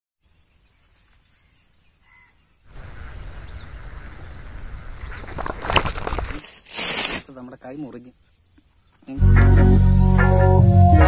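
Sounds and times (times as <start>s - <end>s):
distant bird calls: 0.2s - 6.4s.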